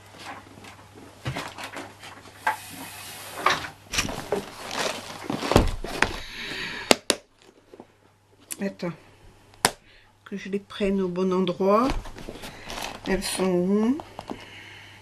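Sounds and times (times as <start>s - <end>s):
heavy thump: 5.4s - 6.3s.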